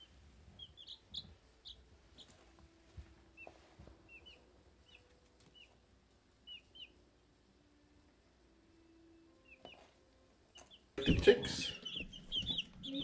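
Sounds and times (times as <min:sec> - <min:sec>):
chicks peeping: 0:00.0 - 0:07.4, 0:09.1 - 0:13.0.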